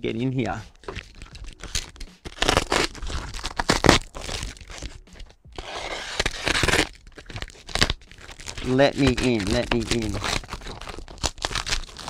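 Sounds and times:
packaging crinkling and tearing: 0.8s - 12.0s.

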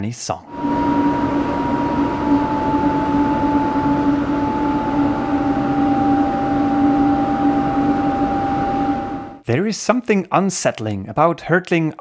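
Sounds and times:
two-tone howl of air through door: 0.4s - 9.4s.

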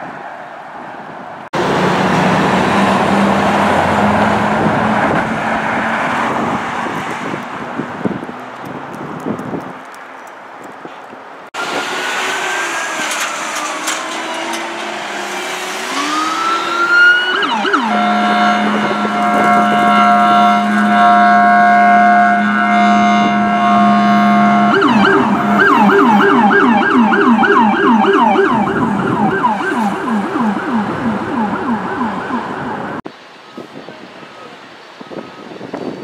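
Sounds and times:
emergency vehicle horn blast: 11.6s - 32.4s
emergency siren wailing: 11.6s - 33.0s
siren fast yelp: 15.9s - 33.0s.

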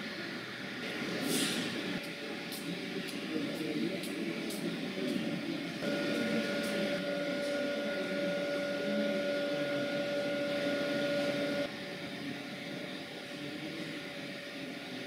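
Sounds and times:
steady pitched tone: 5.8s - 11.7s.

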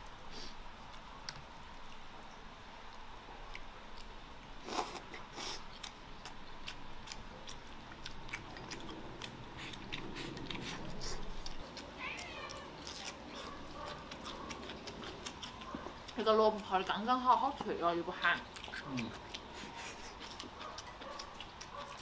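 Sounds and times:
person chewing and slurping: 3.5s - 16.2s, 18.4s - 22.0s
cat meowing: 12.0s - 13.4s.

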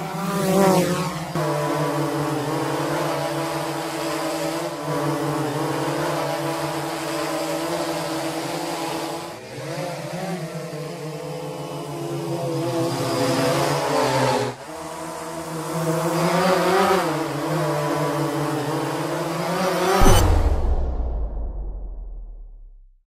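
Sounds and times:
drone buzzing hum: 19.9s - 23.0s.

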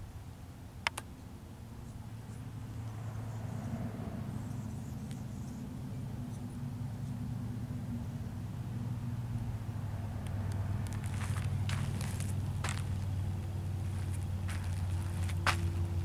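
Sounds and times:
vehicle engine hum: 0.0s - 16.0s
sharp clicks: 0.8s - 1.1s.

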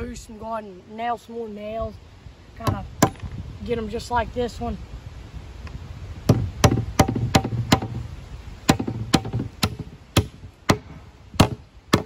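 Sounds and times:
hammer driving nail into wood: 6.3s - 8.0s, 8.7s - 12.0s.

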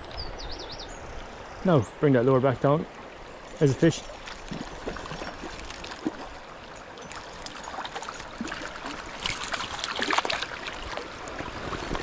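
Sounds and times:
shallow river water flowing: 0.0s - 12.0s
fish splashing at surface: 7.2s - 12.0s.

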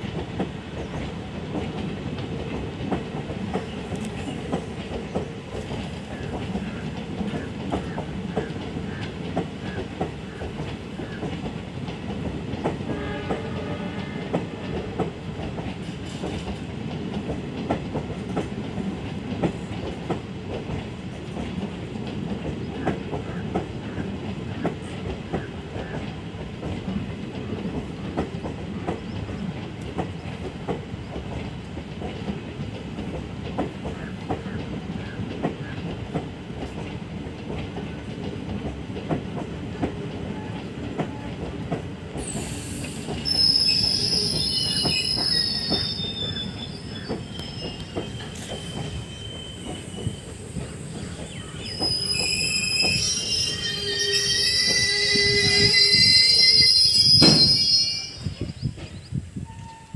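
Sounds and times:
train rumbling: 0.0s - 59.9s
train wheels clickety-clack: 0.0s - 59.9s
wheel squealing: 51.0s - 58.7s.

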